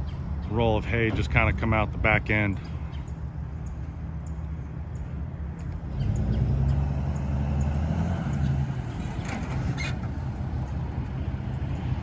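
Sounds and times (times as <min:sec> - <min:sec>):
pickup truck engine revving: 0:05.9 - 0:12.0.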